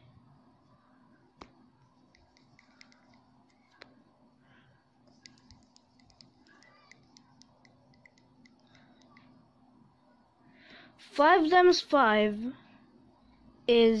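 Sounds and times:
tapping on touch screen: 1.4 - 4.0, 5.1 - 9.3.

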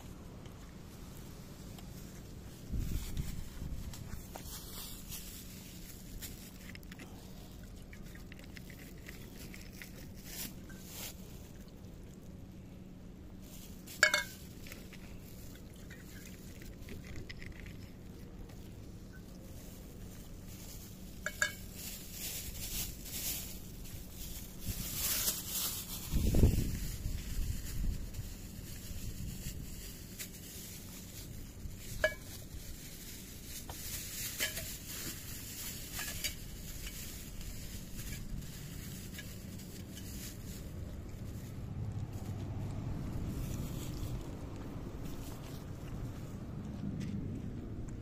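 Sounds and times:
cats chewing: 0.0 - 2.6, 5.4 - 21.2, 40.6 - 48.0
food bowl clinking: 14.0 - 14.4.

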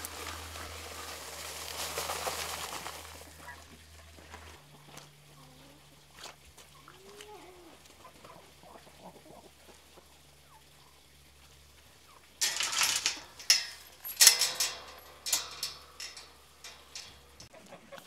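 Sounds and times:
wire-mesh gate rattling and clanking: 0.0 - 3.6, 12.4 - 17.5
faint chicken clucks: 4.7 - 12.3, 17.5 - 18.0.

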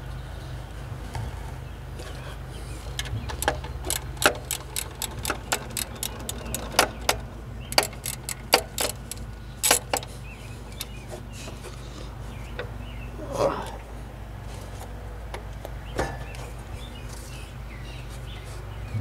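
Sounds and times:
ratchet wrench clicking: 3.0 - 10.1.

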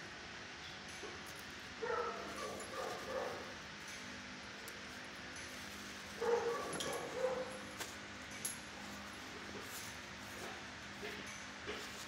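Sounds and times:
dog barking: 1.8 - 3.5, 6.2 - 7.6.

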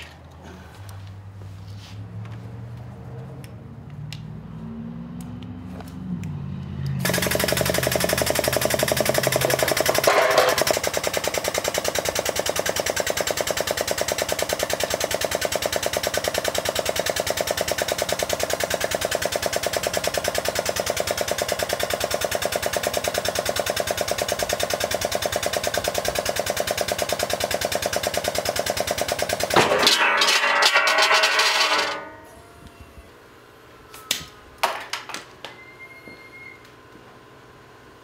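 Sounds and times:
power hammer striking sheet metal: 7.1 - 10.8, 29.4 - 32.4.

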